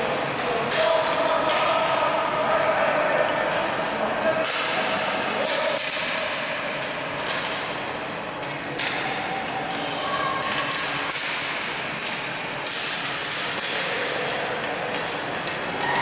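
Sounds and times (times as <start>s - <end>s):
hockey sticks tapping on ice: 0.2s - 2.1s, 3.5s - 7.6s, 8.4s - 9.6s, 10.4s - 16.0s.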